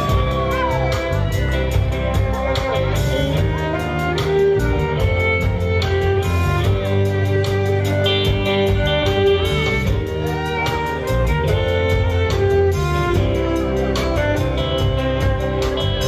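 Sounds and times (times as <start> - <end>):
bass guitar: 0.0 - 16.0
electric guitars: 0.0 - 16.0
violin lead: 0.0 - 16.0.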